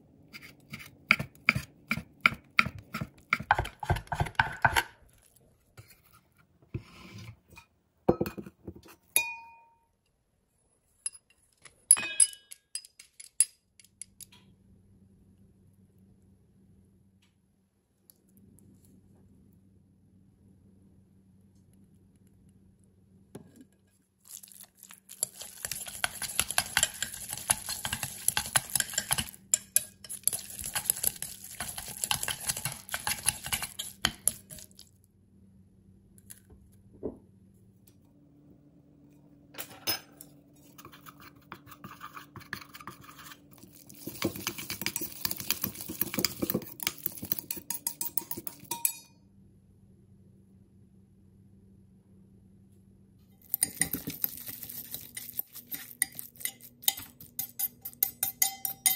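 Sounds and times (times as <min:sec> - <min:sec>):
utensil scraping metal bowl: 0:25.1 - 0:34.8, 0:40.6 - 0:48.9, 0:53.4 - 0:58.9.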